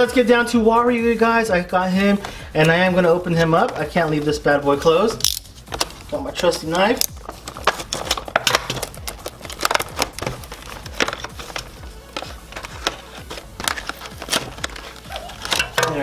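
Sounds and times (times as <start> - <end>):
background music: 0.0 - 16.0
knife cutting plastic packaging: 5.2 - 16.0
plastic clicks and crackles: 7.0 - 16.0.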